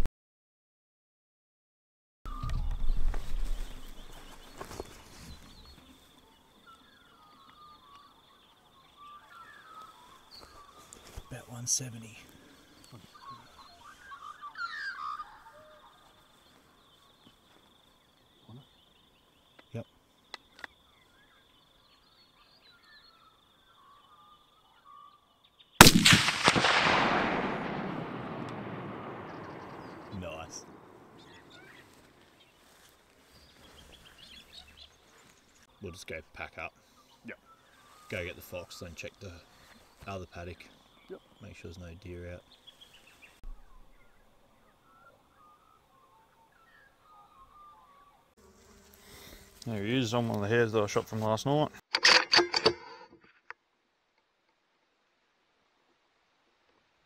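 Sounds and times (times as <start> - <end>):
faint bird chirps: 2.3 - 25.8, 28.9 - 48.4
rifle shot echoing: 25.8 - 31.6.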